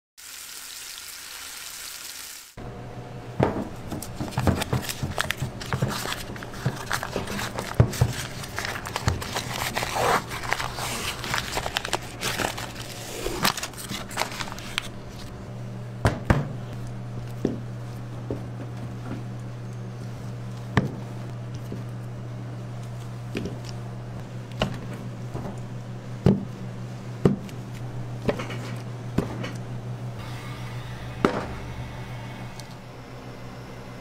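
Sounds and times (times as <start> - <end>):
meat sizzling on a hot plate: 0.2 - 2.6
steady low hum: 2.6 - 34.0
cardboard and paper tearing: 4.0 - 15.3.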